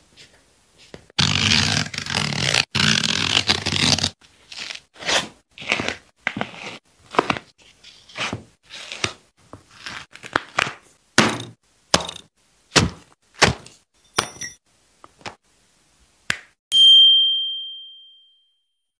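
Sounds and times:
thuds of objects handled: 11.2 - 14.4
bright chime: 16.7 - 18.8.

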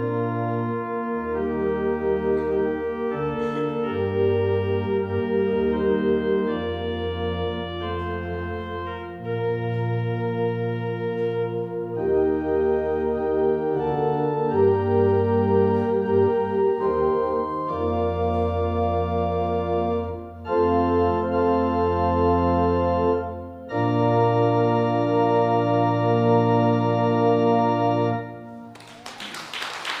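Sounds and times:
church organ playing a hymn: 0.0 - 29.1
hand clapping: 28.7 - 30.0.

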